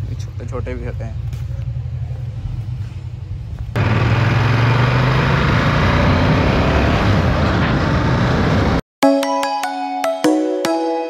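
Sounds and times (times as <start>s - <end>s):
motorcycle engine running: 0.1s - 8.8s.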